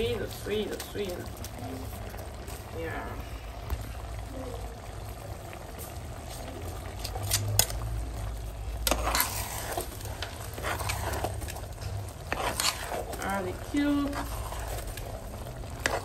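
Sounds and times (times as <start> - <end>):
cooking liquid bubbling: 0.0 - 16.0
metal spoon scraping pot: 8.8 - 16.0.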